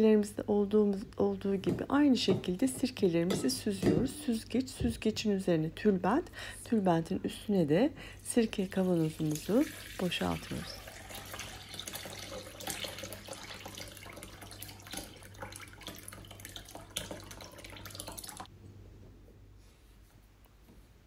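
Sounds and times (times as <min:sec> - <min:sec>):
liquid pouring and splashing: 0:08.6 - 0:18.5.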